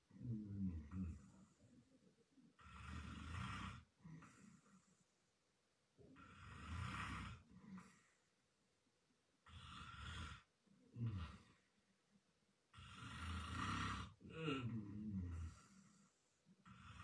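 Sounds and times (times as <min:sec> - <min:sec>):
man snoring loudly: 0:02.6 - 0:03.8, 0:06.2 - 0:07.4, 0:09.5 - 0:11.5, 0:12.8 - 0:15.7, 0:16.6 - 0:17.0.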